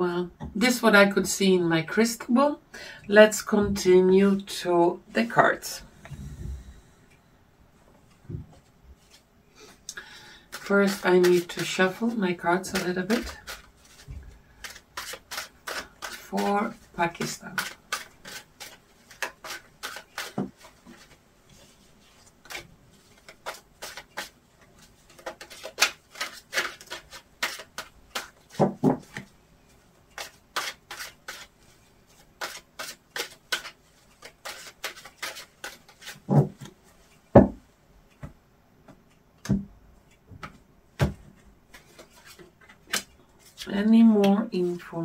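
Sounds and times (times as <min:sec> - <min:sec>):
cards being shuffled: 0:10.5 - 0:21.2, 0:22.1 - 0:29.3, 0:30.2 - 0:31.5, 0:32.1 - 0:36.8, 0:41.7 - 0:43.6.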